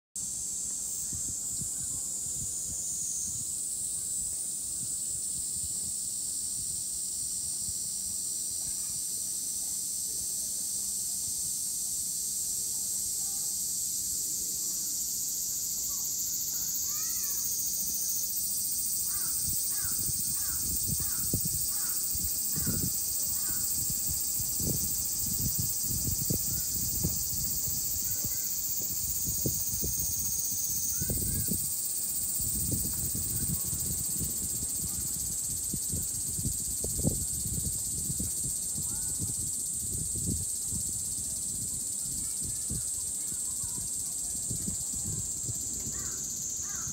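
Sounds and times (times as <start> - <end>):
cicadas buzzing: 0.2 - 46.9
crow cawing: 19.1 - 22.8, 46.0 - 46.9.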